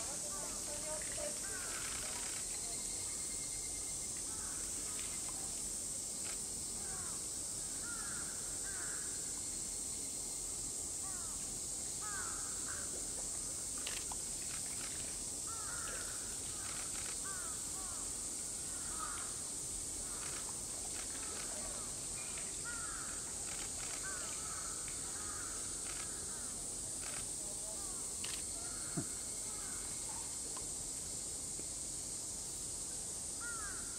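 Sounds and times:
cicadas droning: 0:00.0 - 0:33.9.

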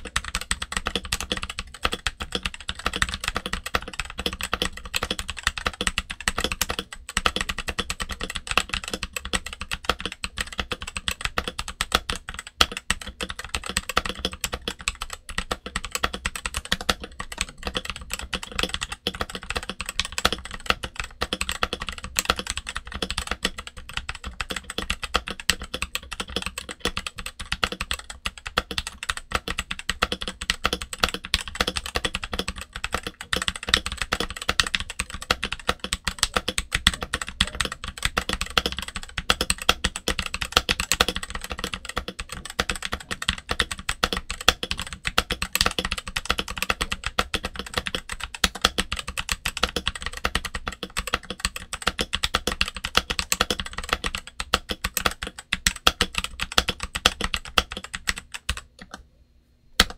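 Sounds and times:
fast typing on mechanical keyboard: 0:00.0 - 0:59.0.

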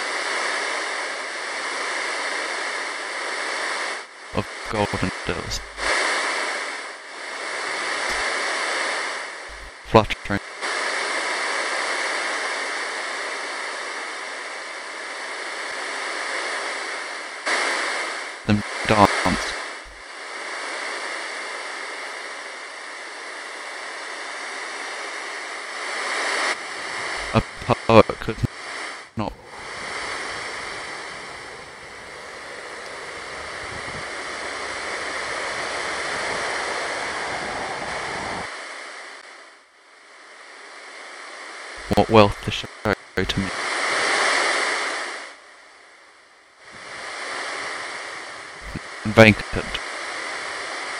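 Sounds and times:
steady rushing noise: 0:00.0 - 0:09.9, 0:25.7 - 0:39.4, 0:46.7 - 0:50.9.

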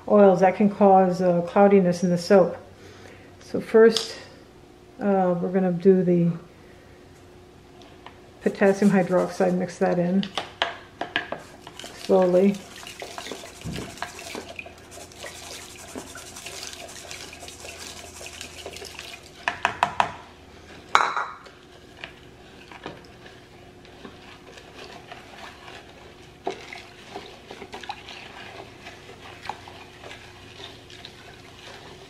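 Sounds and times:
spatula scraping plastic bowl: 0:08.4 - 0:09.8, 0:11.5 - 0:19.4.

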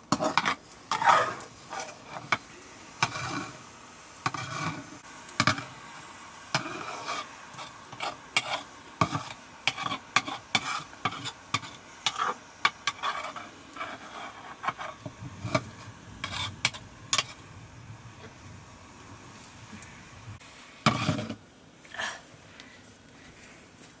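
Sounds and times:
metal spatula scraping a pot: 0:00.0 - 0:02.4, 0:03.0 - 0:03.6, 0:04.2 - 0:05.8, 0:06.5 - 0:17.5, 0:20.8 - 0:21.4.

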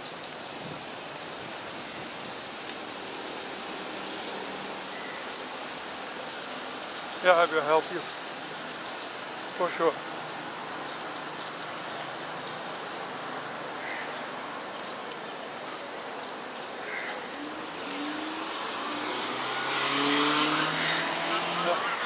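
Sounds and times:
road traffic noise: 0:00.0 - 0:22.0
vehicle engine: 0:17.2 - 0:22.0.

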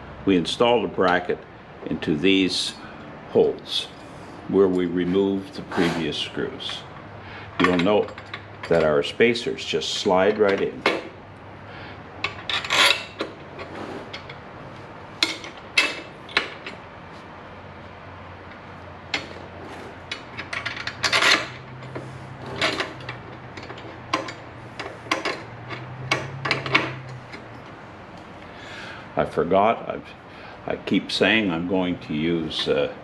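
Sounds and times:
small metal parts clinking: 0:07.6 - 0:09.1, 0:12.2 - 0:14.4, 0:15.2 - 0:16.8, 0:18.4 - 0:27.7.

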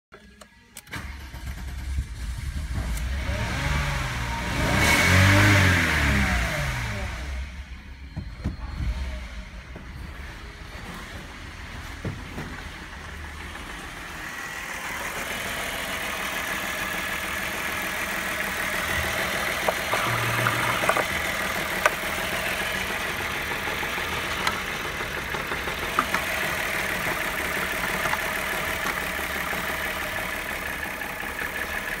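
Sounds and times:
car engine idling: 0:06.7 - 0:32.0.

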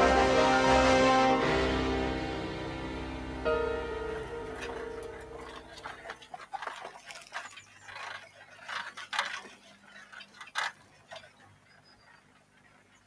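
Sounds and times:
bicycles rolling: 0:01.3 - 0:13.0.

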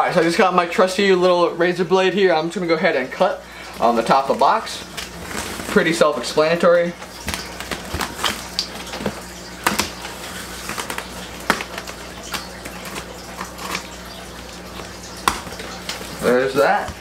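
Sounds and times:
cardboard flaps pulled apart: 0:04.9 - 0:06.0.

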